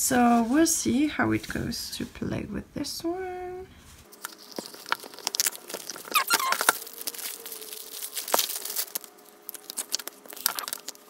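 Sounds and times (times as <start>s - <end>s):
short squeaks: 5.8s - 7.4s.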